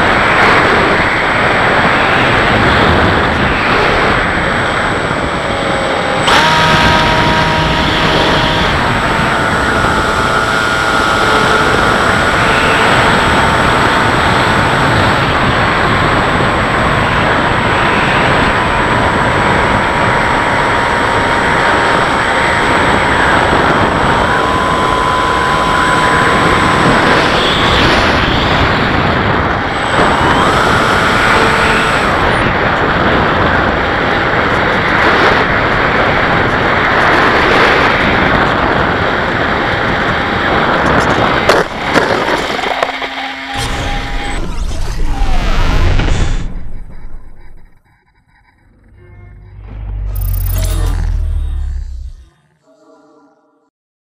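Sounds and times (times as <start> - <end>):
wind rushing: 0.0 - 42.8
electric motor and propeller whine: 0.0 - 52.3.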